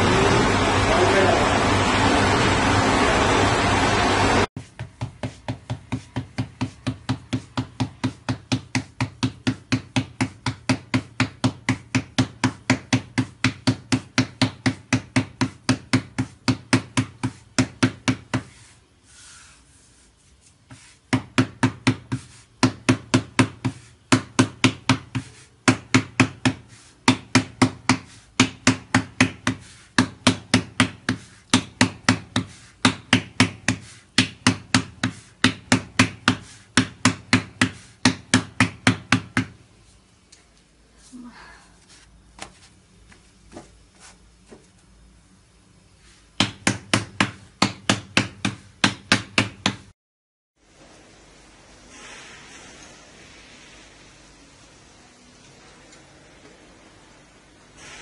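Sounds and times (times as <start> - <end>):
hands patting dough: 4.6 - 39.6, 46.1 - 49.9.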